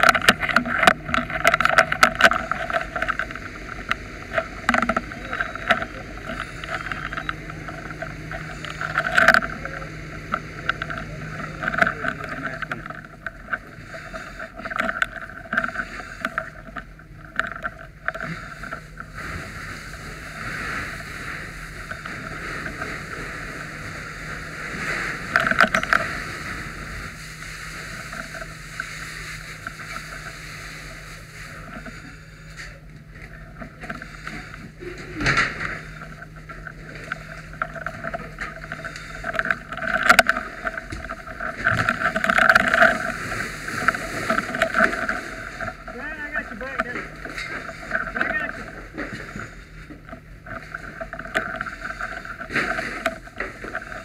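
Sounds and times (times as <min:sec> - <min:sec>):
low hum: 0:00.0 - 0:54.0.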